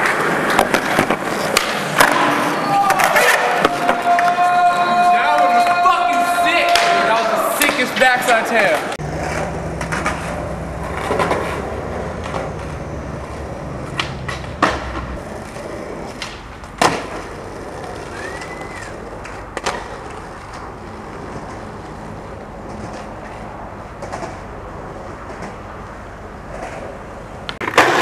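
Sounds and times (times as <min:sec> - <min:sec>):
skateboard cracking against ground: 0:00.0 - 0:05.7, 0:09.0 - 0:12.7, 0:13.8 - 0:22.0, 0:26.5 - 0:28.0
skateboard wheels rolling on asphalt: 0:00.0 - 0:28.0
whistle-like tone: 0:18.0 - 0:19.0.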